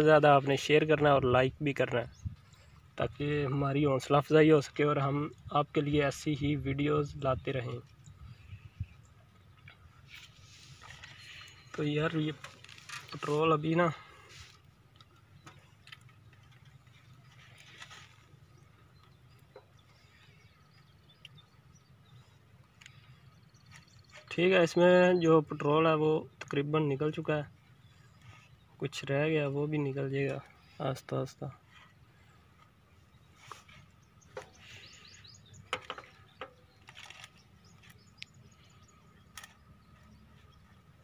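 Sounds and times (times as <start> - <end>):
faint chirps: 7.9 - 24.4, 29.8 - 41.0.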